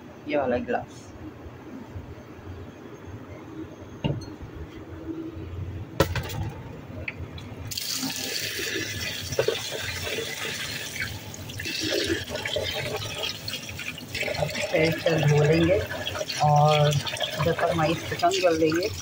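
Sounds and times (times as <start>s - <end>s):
tap water running into bowl: 7.7s - 19.0s.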